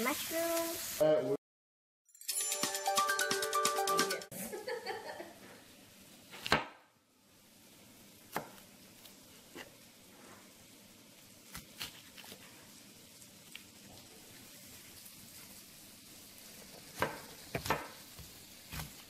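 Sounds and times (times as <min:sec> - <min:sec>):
music: 0:02.1 - 0:04.3
knife chopping on cutting board: 0:06.4 - 0:06.8, 0:08.3 - 0:08.6, 0:16.8 - 0:19.0.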